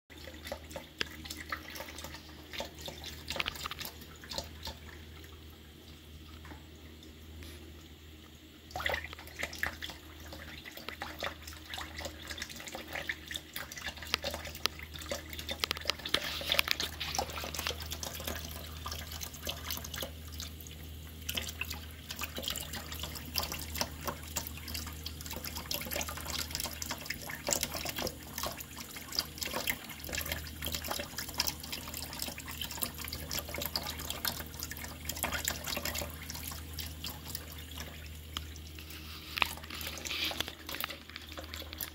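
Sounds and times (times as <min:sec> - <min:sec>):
faucet water running into a bowl: 0:00.1 - 0:41.9
low steady hum: 0:00.1 - 0:41.9
water dripping and splashing: 0:00.1 - 0:41.9.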